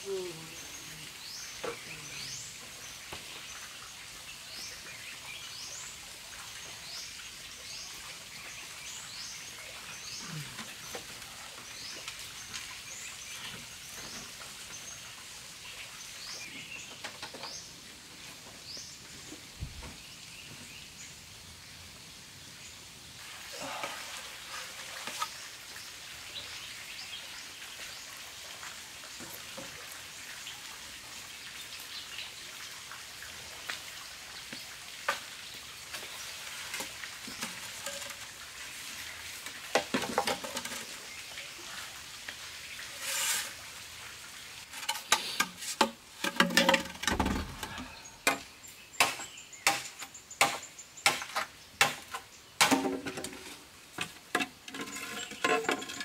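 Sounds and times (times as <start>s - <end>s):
forest background noise: 0.0s - 56.0s
machete chopping bamboo: 48.3s - 53.1s.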